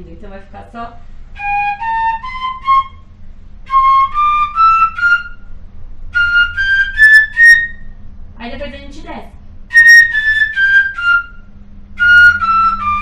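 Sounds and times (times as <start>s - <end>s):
fife playing a scale: 9.7s - 11.4s.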